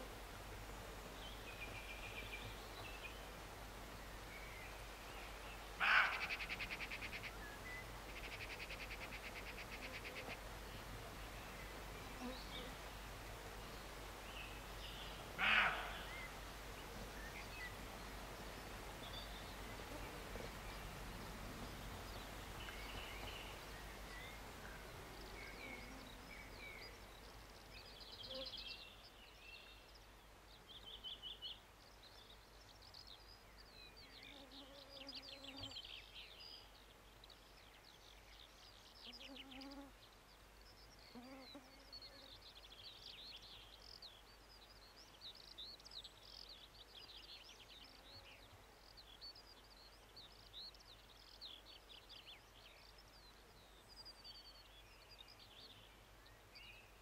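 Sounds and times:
faint steady hiss: 0.0 - 57.0
small birds chirping: 0.9 - 57.0
deer barking: 5.8 - 6.4, 15.4 - 16.1.

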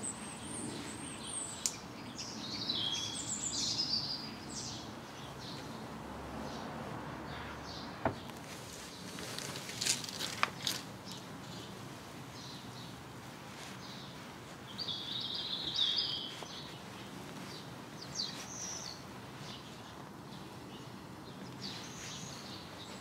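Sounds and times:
outdoor background noise: 0.0 - 23.0
small bird chirping: 13.6 - 19.9.

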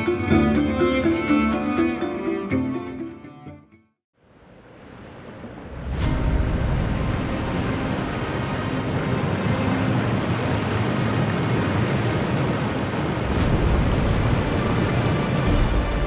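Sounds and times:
background music: 0.0 - 3.9, 13.3 - 16.0.

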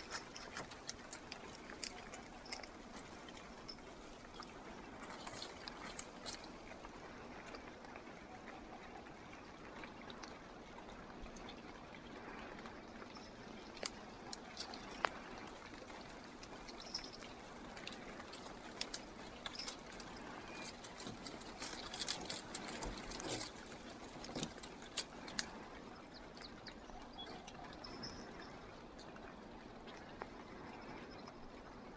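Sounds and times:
twigs and dead leaves crackling: 0.0 - 7.0, 13.7 - 25.7.

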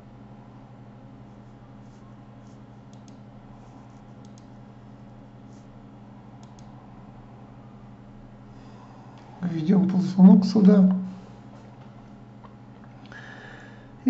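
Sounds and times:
low electrical hum: 0.0 - 14.0
computer mouse clicks: 2.9 - 3.2, 4.2 - 4.5, 6.4 - 6.8.

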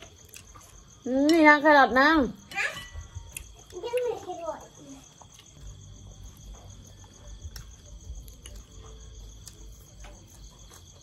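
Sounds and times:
crickets chirping: 0.0 - 11.0.

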